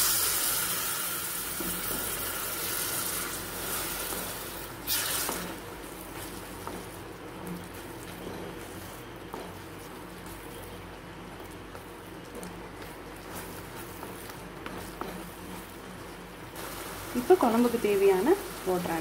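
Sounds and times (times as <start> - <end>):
liquid sizzling in hot oil: 0.0 - 19.0
wooden spatula stirring: 5.7 - 19.0.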